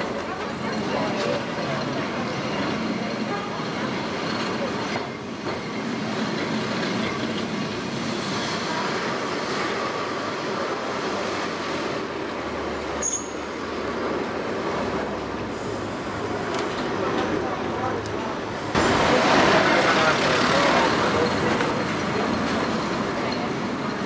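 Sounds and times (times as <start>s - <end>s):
tram wheels rumbling on rails: 0.0s - 24.0s
faint wheel squeal: 13.0s - 13.6s.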